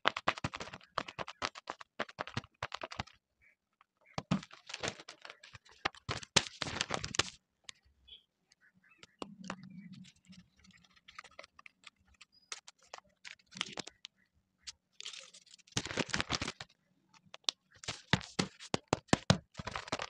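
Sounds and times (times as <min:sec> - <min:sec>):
sharp paper crackles: 0:00.0 - 0:03.2, 0:04.2 - 0:07.4, 0:10.0 - 0:14.1, 0:14.7 - 0:20.0
paper rustling and crinkling: 0:04.2 - 0:07.8, 0:10.0 - 0:14.1, 0:14.7 - 0:20.0.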